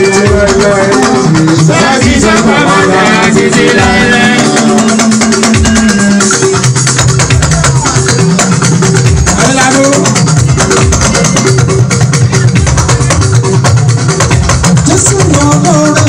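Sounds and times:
man singing into microphone: 0.0 - 6.4.

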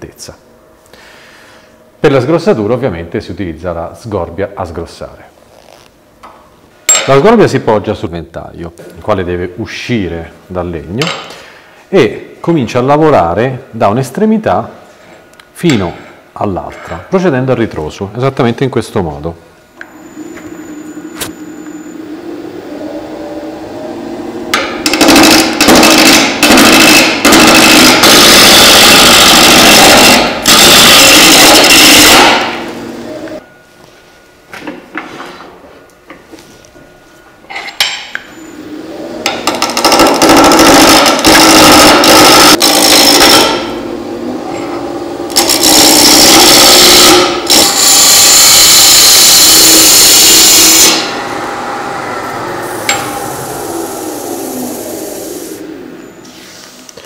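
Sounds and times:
lathe motor hum: 19.8 - 33.4, 38.5 - 48.0, 50.6 - 56.6.

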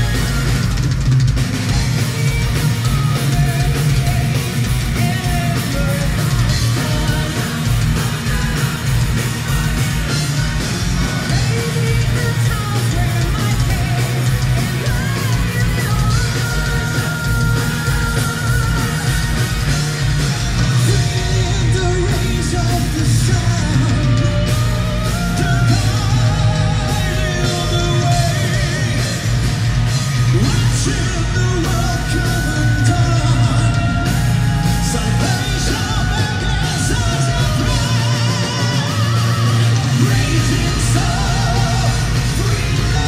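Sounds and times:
man singing: 0.0 - 0.8, 1.7 - 43.0
drums: 0.0 - 43.0
guitars: 0.0 - 43.0
woman singing: 1.7 - 19.7.

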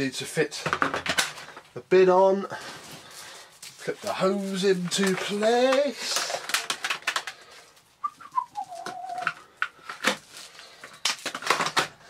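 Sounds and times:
plastic clicks and knocks: 0.6 - 1.4.

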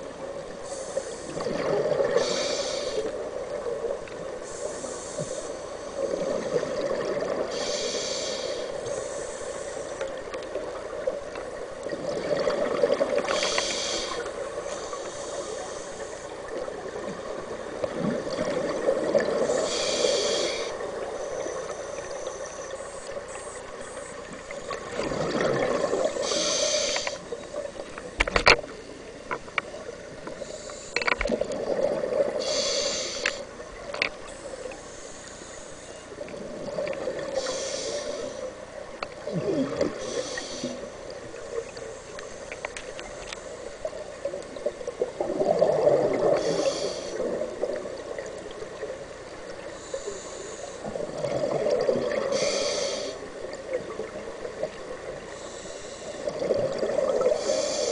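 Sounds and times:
regulator hissing inhalation: 2.2 - 3.1, 7.5 - 10.0, 13.3 - 16.3, 19.4 - 24.1, 26.2 - 27.2, 32.4 - 33.5, 37.4 - 38.5, 40.0 - 40.9, 46.4 - 47.3, 52.3 - 53.3, 57.3 - 57.9.

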